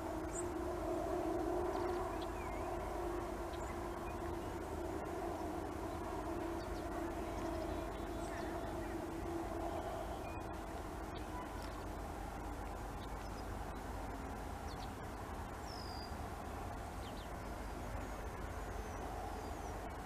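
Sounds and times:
mechanical hum: 0:00.0 - 0:20.0
bird chirps: 0:15.6 - 0:16.2.

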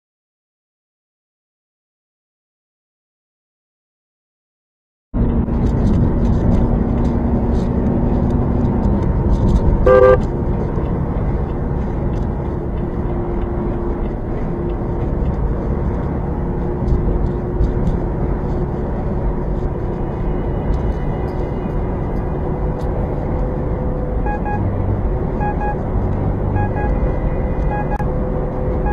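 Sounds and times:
truck engine and road noise: 0:05.2 - 0:28.9
truck horn blast: 0:09.9 - 0:10.3.

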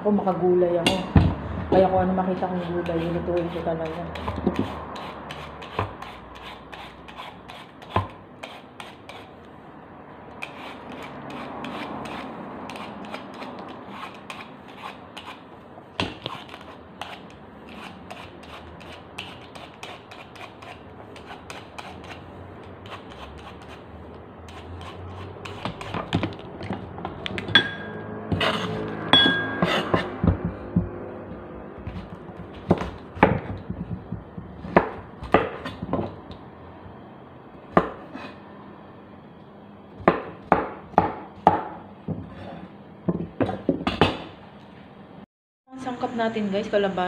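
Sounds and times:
vegetable peeler scraping squash skin: 0:02.3 - 0:09.4, 0:10.3 - 0:15.4, 0:16.1 - 0:23.9, 0:24.5 - 0:26.1.

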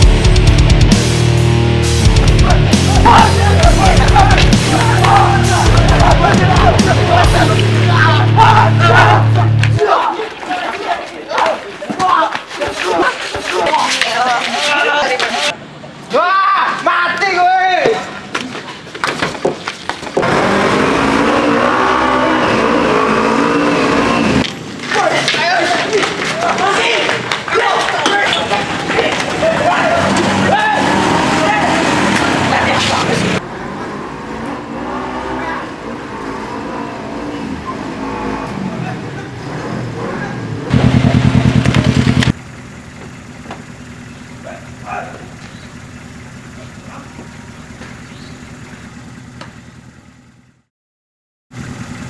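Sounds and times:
car engine running: 0:00.0 - 0:09.8, 0:40.6 - 0:50.7, 0:51.5 - 0:52.0
motorcycle idling: 0:02.0 - 0:09.6, 0:40.7 - 0:50.7, 0:51.5 - 0:52.0
sharp blows and scuffling: 0:11.4 - 0:15.5.

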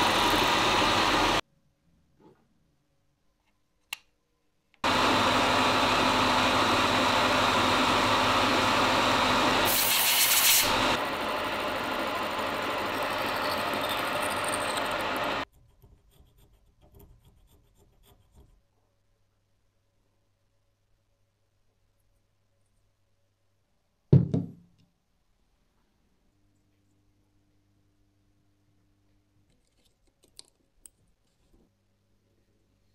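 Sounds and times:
bright hiss: 0:09.7 - 0:10.8.

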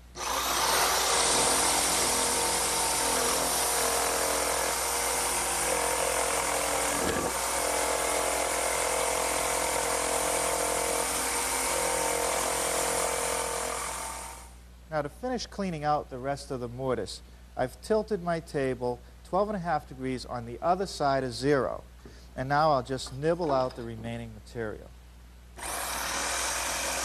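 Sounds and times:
electric jigsaw cutting wood: 0:00.2 - 0:14.5, 0:25.6 - 0:27.0.

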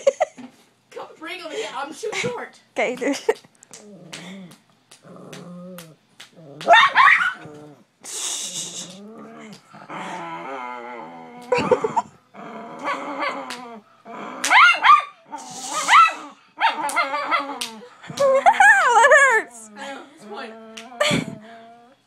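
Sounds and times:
dog growling: 0:03.8 - 0:18.6, 0:19.5 - 0:22.0
dog barking: 0:06.7 - 0:07.4, 0:14.5 - 0:15.2, 0:15.8 - 0:17.4.

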